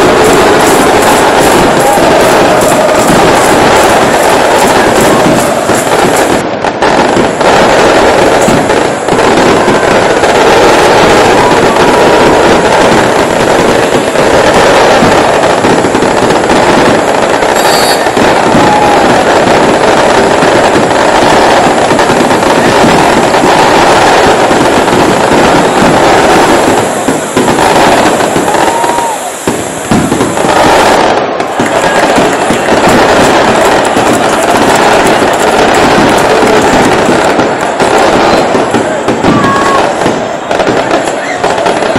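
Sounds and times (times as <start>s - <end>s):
dense crackling: 0.0s - 41.9s
stadium crowd cheering and chanting: 0.0s - 41.9s.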